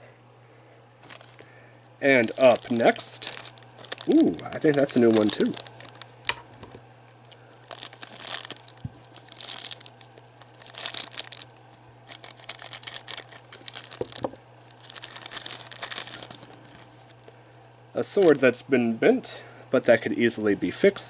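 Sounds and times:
plastic bag crinkling and tearing: 0:01.0 - 0:06.4, 0:07.2 - 0:17.4.

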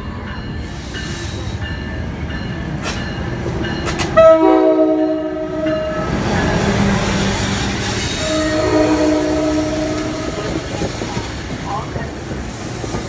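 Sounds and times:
train engine and wheels rumbling: 0:00.0 - 0:13.0
train horn: 0:04.1 - 0:06.1, 0:07.9 - 0:10.6.

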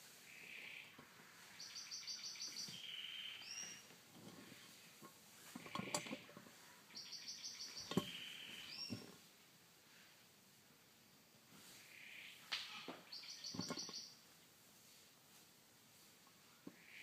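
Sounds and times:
bird singing trills: 0:01.6 - 0:03.8, 0:06.9 - 0:09.0, 0:13.1 - 0:14.2.

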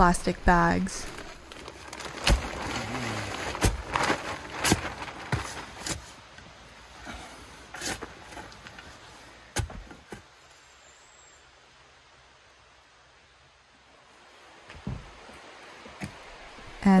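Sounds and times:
shovel scraping in soil: 0:02.1 - 0:06.2, 0:07.0 - 0:10.2.

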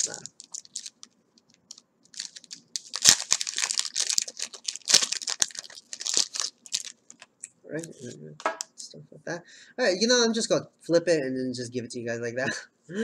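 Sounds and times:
foil wrapper tearing and crinkling: 0:00.0 - 0:07.3.

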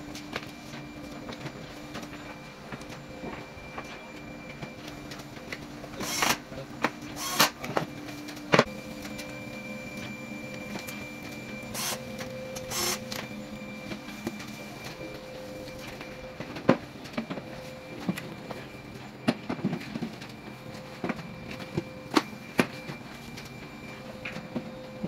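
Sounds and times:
steady low hum: 0:00.0 - 0:25.0
cordless drill whirring: 0:06.0 - 0:06.4, 0:07.2 - 0:07.6, 0:11.7 - 0:13.2.

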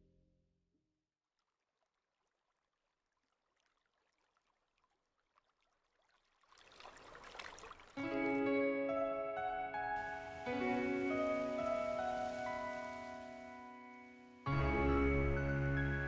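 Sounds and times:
water rushing: 0:06.4 - 0:08.4, 0:10.0 - 0:16.0
music with held notes: 0:08.0 - 0:16.0
bath foam crackling: 0:10.0 - 0:13.8.

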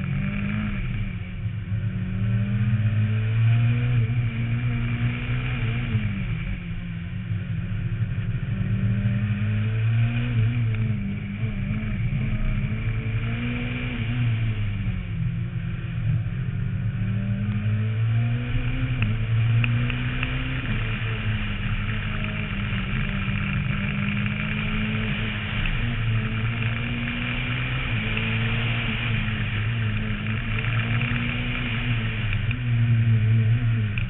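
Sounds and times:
rally car engine accelerating: 0:00.0 - 0:34.0
road noise: 0:00.0 - 0:34.0.

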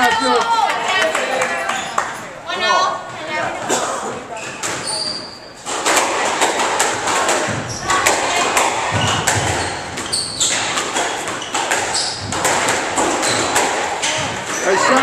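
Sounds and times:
squash ball hits: 0:05.6 - 0:15.0.

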